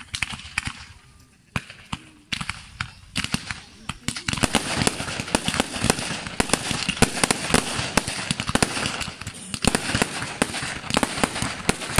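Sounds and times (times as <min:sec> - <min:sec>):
fireworks bangs: 0:00.0 - 0:11.9
fireworks crackle: 0:00.0 - 0:11.9.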